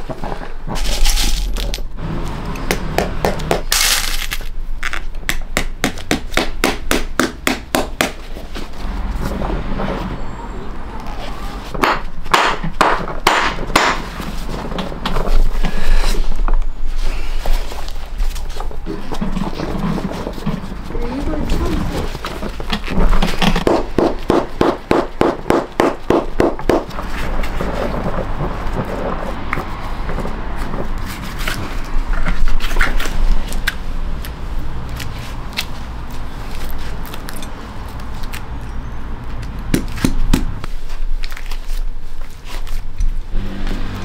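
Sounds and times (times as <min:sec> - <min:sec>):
clicks scrapes and knocks of handling: 0:26.7 - 0:34.3.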